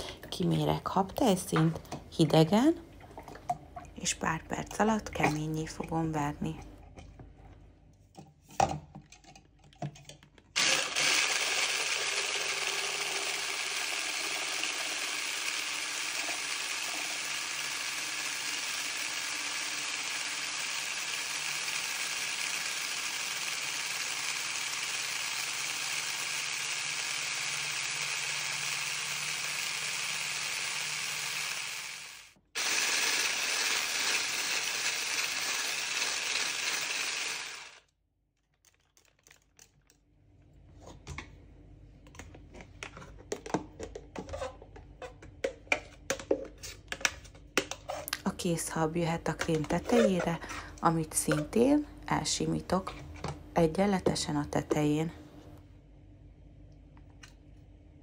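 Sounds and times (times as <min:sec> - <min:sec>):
hand blender motor whine: 0:10.6 - 0:37.8.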